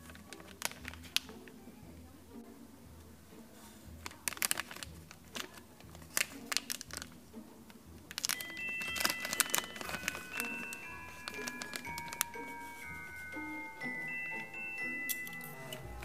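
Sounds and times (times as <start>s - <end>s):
plastic candy packet crinkling: 0.0s - 1.4s, 4.0s - 7.2s, 8.1s - 16.0s
chime-like music with bell tones: 8.3s - 16.0s.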